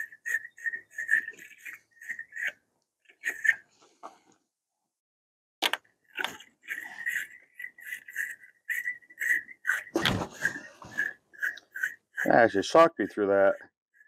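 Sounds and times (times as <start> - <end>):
thin squeaky whistle: 0.0 - 2.5, 6.7 - 12.0.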